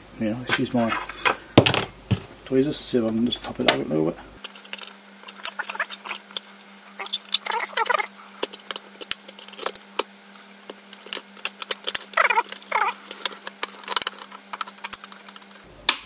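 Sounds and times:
steady low hum: 0:00.0 - 0:16.0
high-pitched chattering bursts: 0:05.4 - 0:06.2, 0:07.0 - 0:08.1, 0:12.2 - 0:13.0.

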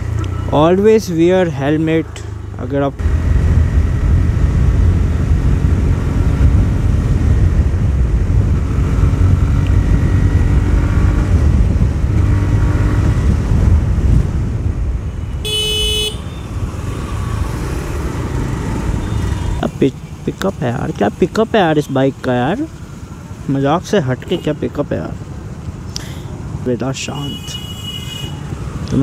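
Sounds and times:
wind rumble on microphone: 0:03.0 - 0:15.2
vehicle horn beep: 0:15.3 - 0:16.5, 0:19.0 - 0:19.6, 0:27.2 - 0:28.4.

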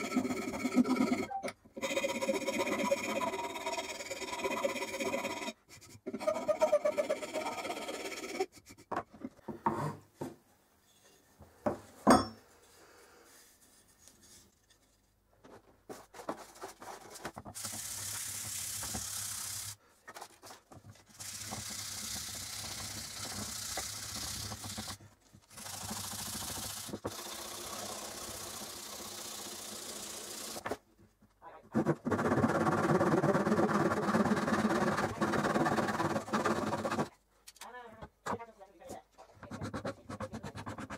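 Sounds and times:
file rasping on wood: 0:00.0 - 0:08.8, 0:31.8 - 0:37.1, 0:39.5 - 0:40.9.

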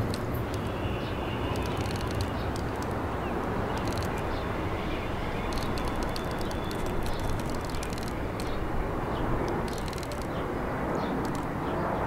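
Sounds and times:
high clicking and rattling: 0:00.0 - 0:00.7, 0:01.5 - 0:03.0, 0:03.7 - 0:04.3, 0:05.5 - 0:08.6, 0:09.4 - 0:10.4, 0:11.2 - 0:11.5.

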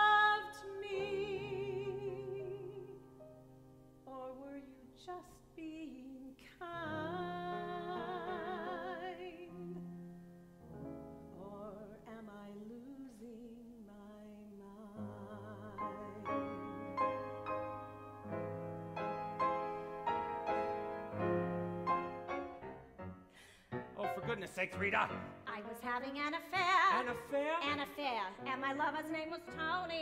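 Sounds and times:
woman singing operatically: 0:00.0 - 0:03.1, 0:04.1 - 0:09.8, 0:11.3 - 0:16.7, 0:25.5 - 0:30.0
grand piano: 0:00.0 - 0:30.0.

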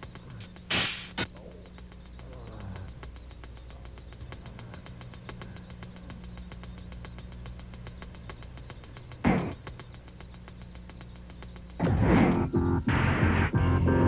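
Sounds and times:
rapid irregular clicking: 0:00.0 - 0:12.6
steady low hum: 0:00.0 - 0:14.0.

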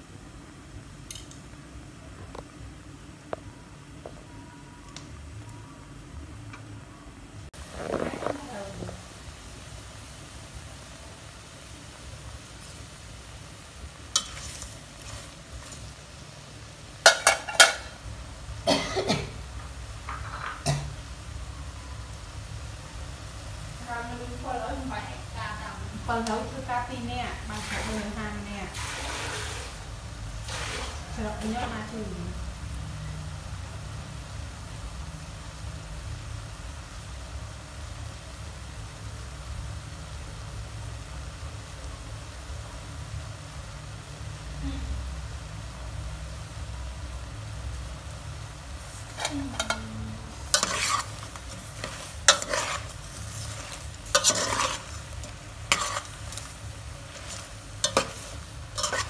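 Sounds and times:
shrimp cooking in a wok: 0:00.0 - 0:59.0
utensil scraping metal wok: 0:13.8 - 0:16.3, 0:16.9 - 0:18.1, 0:26.1 - 0:31.9, 0:48.6 - 0:59.0.

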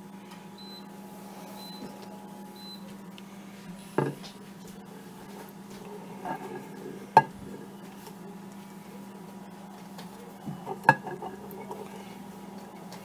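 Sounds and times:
steady hum: 0:00.0 - 0:13.0
eggs clicking on ceramic plate: 0:10.5 - 0:11.9.

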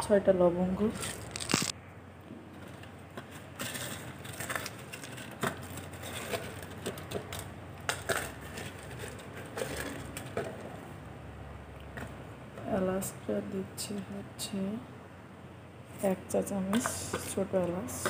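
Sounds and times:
clicks and rustles of handling: 0:00.9 - 0:01.8, 0:02.5 - 0:10.8.

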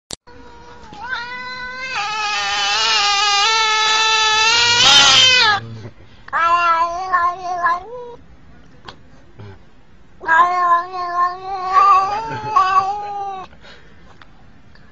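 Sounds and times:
cat yowling: 0:00.3 - 0:05.6, 0:06.4 - 0:08.2, 0:10.2 - 0:13.5.

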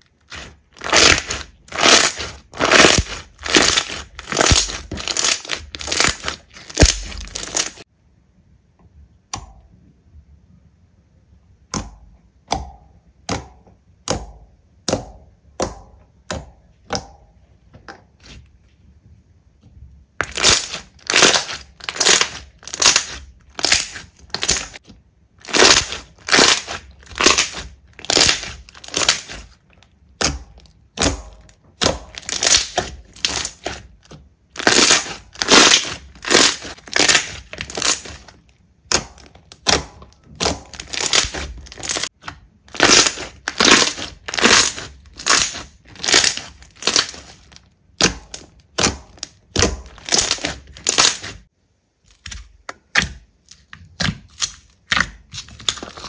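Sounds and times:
slime squeezed by hand: 0:00.2 - 0:07.8.

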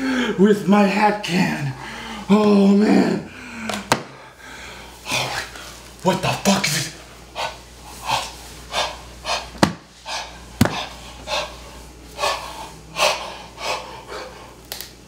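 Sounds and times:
man panting heavily: 0:00.0 - 0:00.5, 0:01.7 - 0:02.4, 0:03.0 - 0:05.7, 0:06.8 - 0:14.6.

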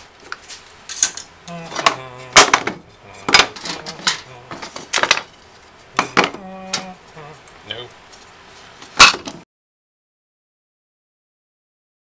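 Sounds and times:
wooden offcuts knocking and clattering: 0:01.0 - 0:05.3, 0:06.0 - 0:06.4.

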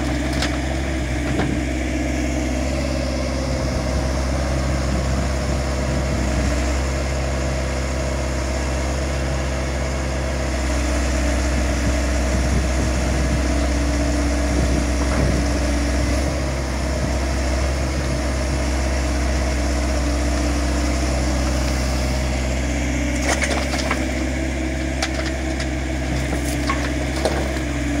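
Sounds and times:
excavator diesel engine running: 0:00.0 - 0:28.0
rubble knocking on steel truck bed: 0:25.0 - 0:27.7.

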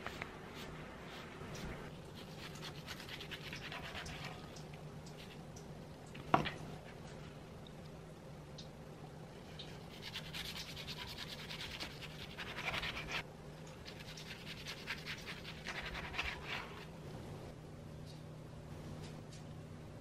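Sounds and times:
faint steady hum: 0:00.0 - 0:20.0
rapid scratching strokes: 0:02.2 - 0:04.4, 0:09.8 - 0:13.2, 0:13.8 - 0:16.9.

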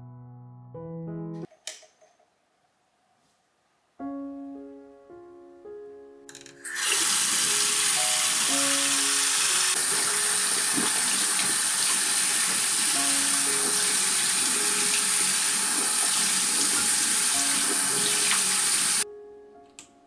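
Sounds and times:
hands washing under water: 0:06.7 - 0:19.0
tap water running into sink: 0:06.7 - 0:19.0.

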